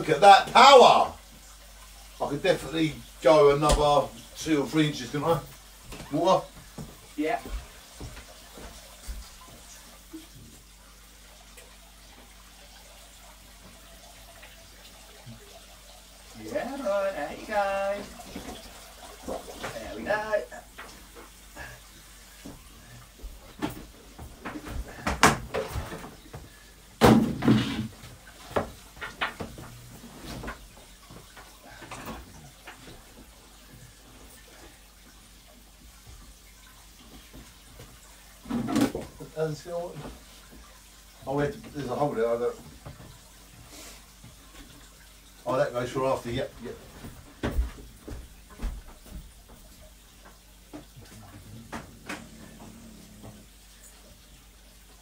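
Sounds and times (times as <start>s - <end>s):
sharp knocks and clunks: 23.6s - 29.7s.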